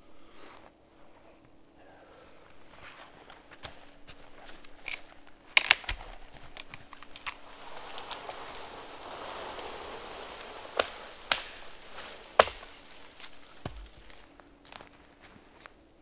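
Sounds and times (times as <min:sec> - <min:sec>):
wood cracking: 0:03.1 - 0:15.7
tree falling through branches: 0:03.9 - 0:15.7.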